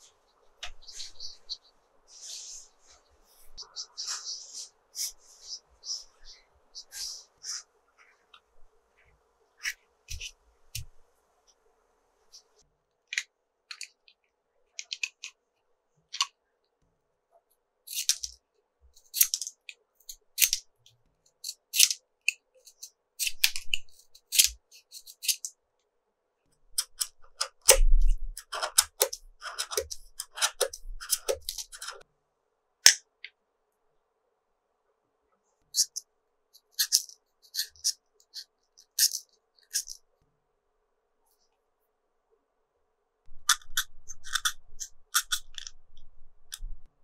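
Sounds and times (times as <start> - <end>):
knife scraping pencils: 0.6 - 8.2, 17.9 - 18.4, 19.0 - 20.6, 21.4 - 22.0, 22.6 - 25.5, 26.8 - 32.0, 35.8 - 36.0, 36.6 - 40.0, 43.4 - 46.7.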